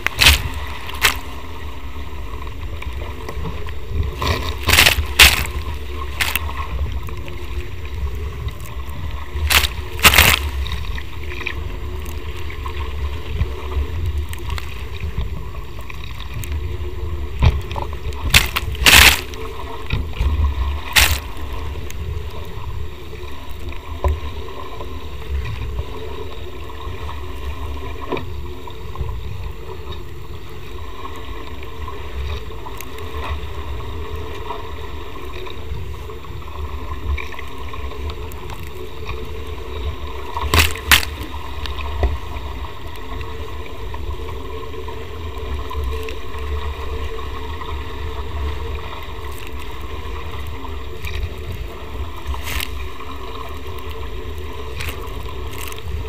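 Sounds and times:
sharp water splashes: 0.0s - 1.5s, 4.1s - 6.8s, 9.3s - 11.6s, 18.2s - 19.9s, 20.7s - 21.7s, 40.4s - 41.4s
water rushing: 0.0s - 56.0s
wind rumbling on microphone: 0.0s - 56.0s.

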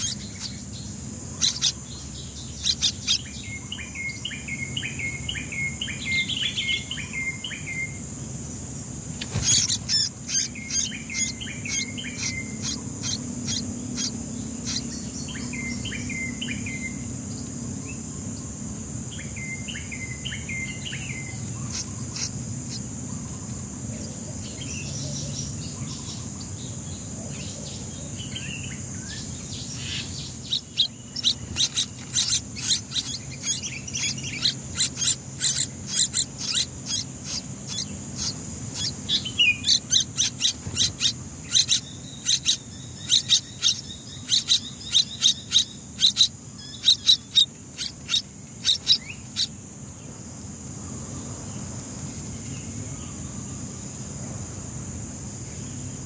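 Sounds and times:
nestlings begging with high cheeps: 0.0s - 8.4s, 9.0s - 17.3s, 18.0s - 23.8s, 27.8s - 49.9s
high insect drone: 0.0s - 56.0s.

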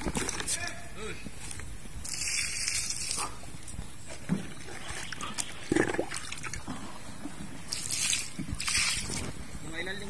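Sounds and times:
water sloshing and trickling: 2.0s - 9.4s.

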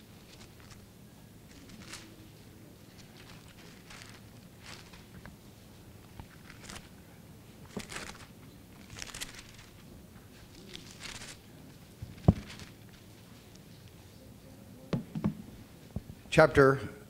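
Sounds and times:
pages turning: 0.0s - 0.9s, 1.5s - 5.4s, 6.0s - 7.0s, 7.6s - 13.9s.

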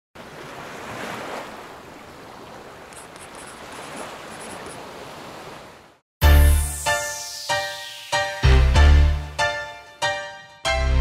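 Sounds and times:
sea waves washing on shore: 0.2s - 6.0s.

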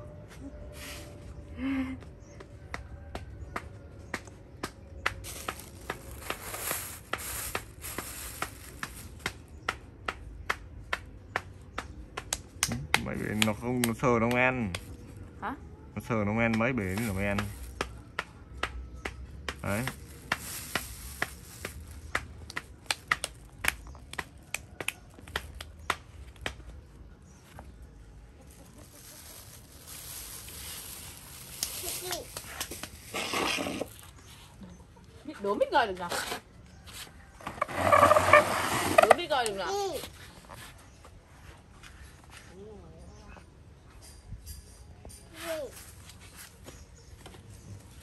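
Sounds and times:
rustling: 5.2s - 9.2s, 19.6s - 22.2s, 28.4s - 34.6s, 36.1s - 40.9s.

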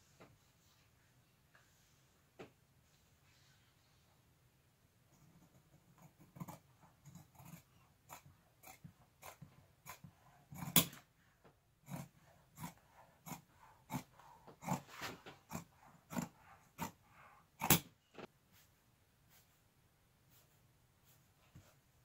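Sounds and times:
scissors snipping faux leather: 6.0s - 11.1s, 11.9s - 14.8s, 17.6s - 17.9s.

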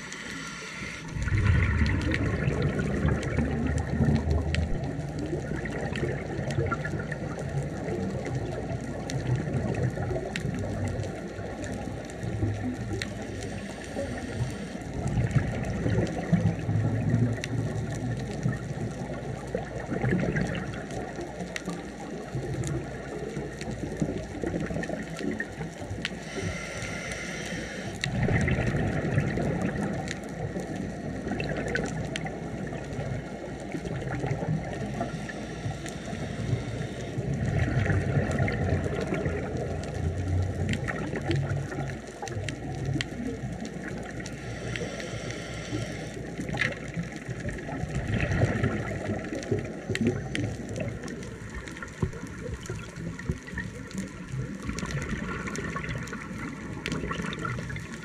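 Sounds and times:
regulator hissing inhalation: 0.0s - 1.2s, 13.4s - 14.8s, 26.2s - 28.0s, 35.0s - 37.2s, 44.4s - 46.2s
gurgling exhaled bubbles: 0.0s - 58.0s.

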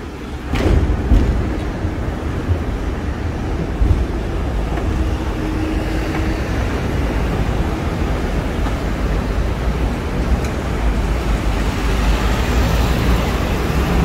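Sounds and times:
tram rumbling on tracks: 0.0s - 14.0s
thump: 0.5s - 1.6s.

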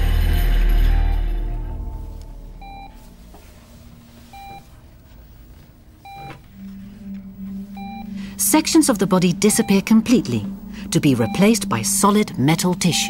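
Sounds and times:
low steady hum: 0.0s - 13.0s
music: 0.0s - 13.0s
patient monitor beeping: 0.8s - 13.0s.

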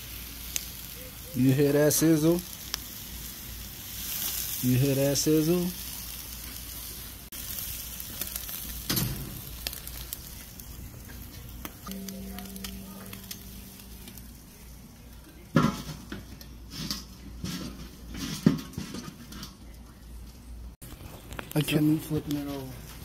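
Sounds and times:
meat sizzling on a grill: 0.0s - 18.3s.

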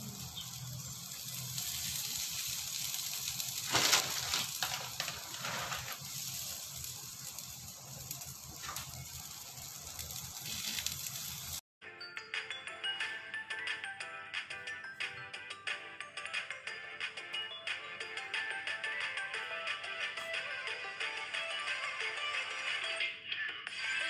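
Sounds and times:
omelet sizzling in a frying pan: 0.0s - 11.6s.

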